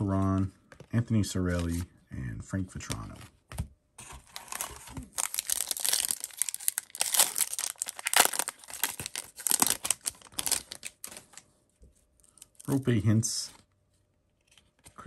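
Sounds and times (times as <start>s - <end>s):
wrapper crinkling and tearing: 4.2s - 11.4s.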